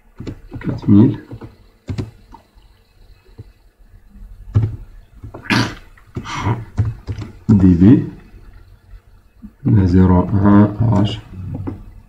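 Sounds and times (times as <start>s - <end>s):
computer keyboard keystrokes: 0.2s - 2.2s, 6.7s - 7.4s.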